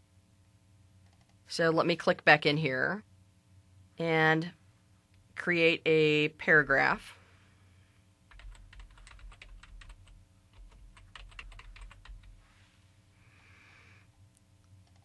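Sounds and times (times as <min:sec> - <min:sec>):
keyboard typing clicks: 0:01.0 - 0:01.4, 0:08.3 - 0:12.3, 0:14.6 - 0:15.0.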